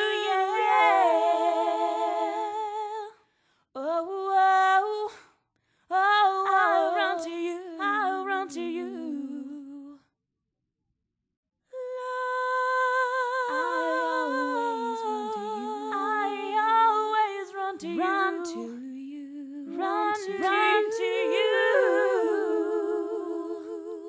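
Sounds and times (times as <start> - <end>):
woman singing layered harmony: 0.0 - 3.2, 3.8 - 5.2, 5.9 - 10.0, 11.8 - 24.0.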